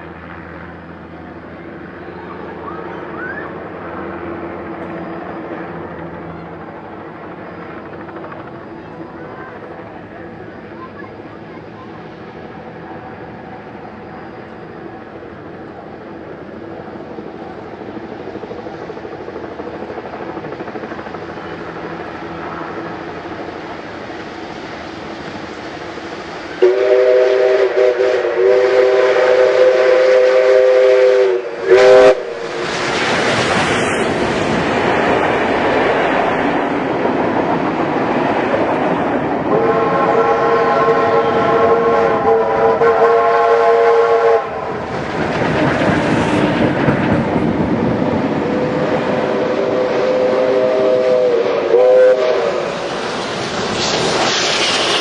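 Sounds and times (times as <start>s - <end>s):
rail noise: 0.0s - 55.0s
steam locomotive exhaust: 0.0s - 55.0s
steam whistle blast: 26.6s - 32.4s, 39.5s - 44.7s, 49.3s - 52.8s.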